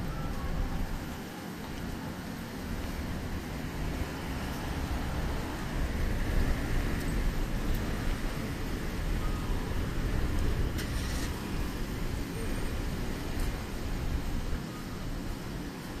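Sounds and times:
traffic rumble: 0.0s - 16.0s
short hiss: 10.7s - 11.7s.

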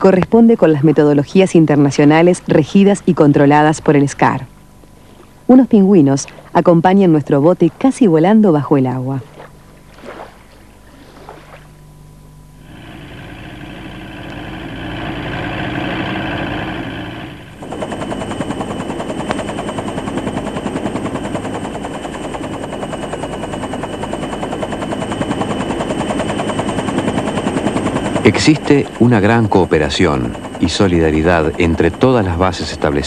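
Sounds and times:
turbine whine: 0.0s - 33.0s
motor sound: 9.3s - 33.0s
helicopter rotor chopping: 12.6s - 33.0s.

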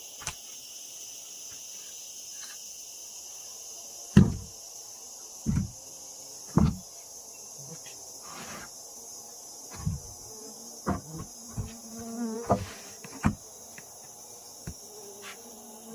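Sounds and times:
insects droning: 0.0s - 15.9s
dull thumps: 4.2s - 4.5s, 5.4s - 5.8s, 6.5s - 6.9s, 9.7s - 10.2s, 10.8s - 13.4s.

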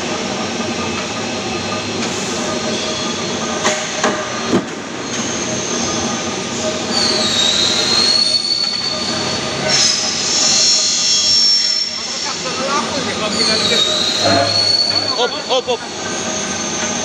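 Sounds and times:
high metallic squeal: 13.3s - 16.6s
sharp metallic clanks: 14.1s - 15.5s.

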